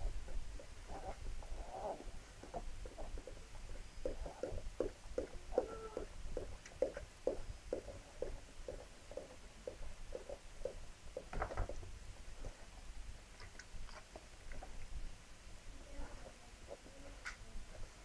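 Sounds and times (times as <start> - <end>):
dog licking puppies: 0.1 - 11.3.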